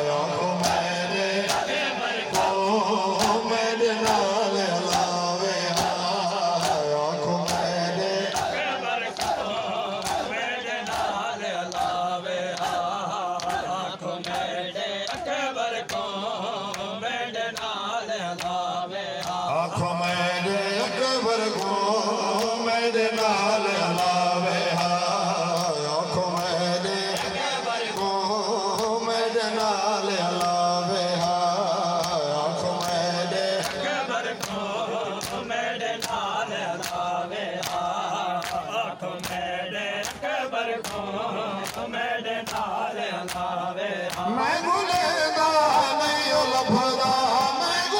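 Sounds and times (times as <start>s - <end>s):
man chanting through loudspeaker: 0.0s - 47.9s
men beating their chests: 7.5s - 13.7s.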